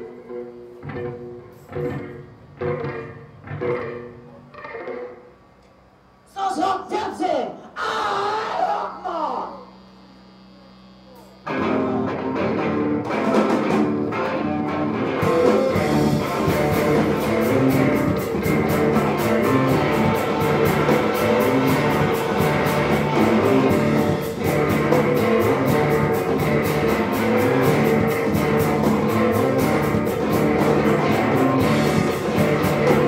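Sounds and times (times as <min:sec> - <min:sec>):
rock band playing live: 0:00.0 - 0:05.2, 0:11.5 - 0:33.0
fast steady drum beat: 0:15.2 - 0:33.0.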